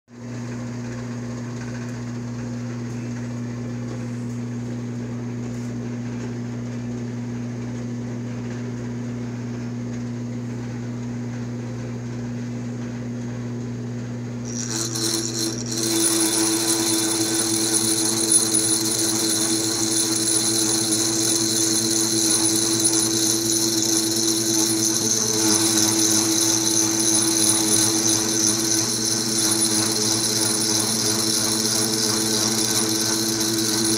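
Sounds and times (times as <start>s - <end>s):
milling machine humming: 14.4s - 33.9s
saw cutting metal whine: 14.5s - 33.9s.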